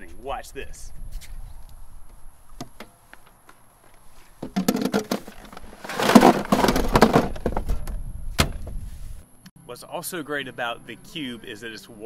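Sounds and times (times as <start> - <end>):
cardboard rustling and scraping: 3.9 - 9.2
cans knocking and clinking: 4.4 - 7.5.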